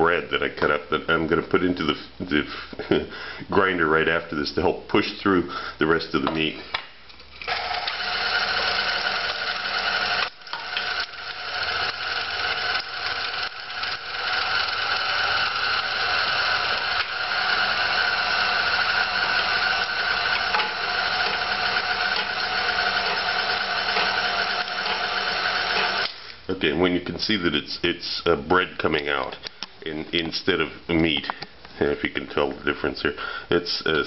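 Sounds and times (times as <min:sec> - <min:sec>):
meat grinder motor whirring: 0:07.4 - 0:26.2.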